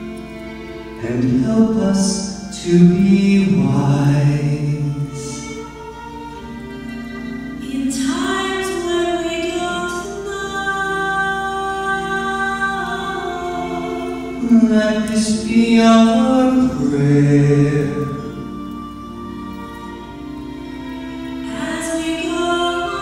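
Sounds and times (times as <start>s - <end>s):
man singing into a microphone: 1.0s - 5.8s, 13.6s - 18.5s.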